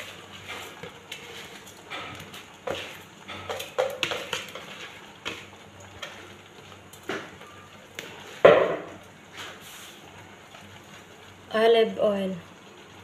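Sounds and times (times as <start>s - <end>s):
bowl knocking on pot: 8.4s - 8.9s.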